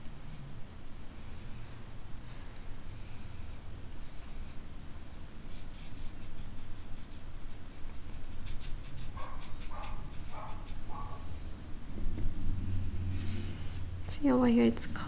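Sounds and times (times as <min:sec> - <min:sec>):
paintbrush scratching on paper: 0:05.4 - 0:11.2.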